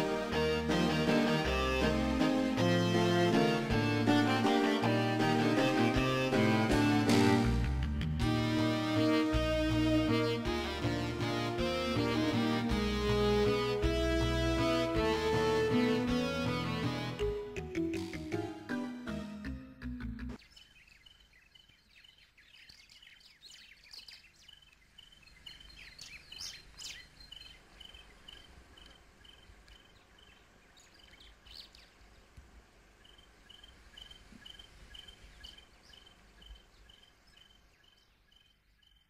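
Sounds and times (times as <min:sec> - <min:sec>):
bird calls: 0:20.4 - 0:32.3, 0:33.0 - 0:39.0.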